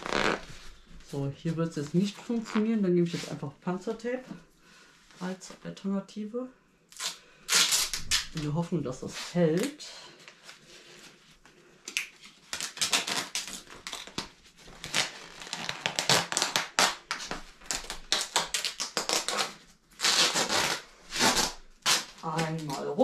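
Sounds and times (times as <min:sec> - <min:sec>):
duct tape pulled off roll: 0:06.9 - 0:08.4, 0:12.5 - 0:14.2, 0:14.8 - 0:22.5.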